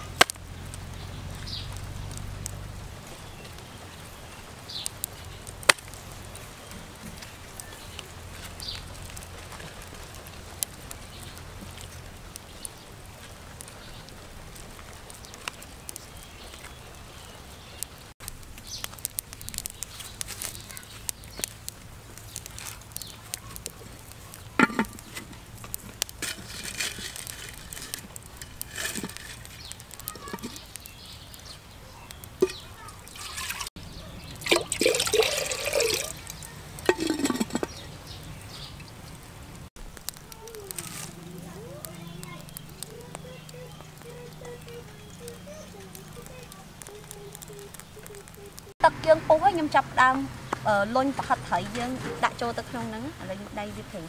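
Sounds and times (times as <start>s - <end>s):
water trickling into clay pot: 17.8s - 50.1s
handling knocks and rustles: 18.3s - 30.8s, 36.2s - 38.7s.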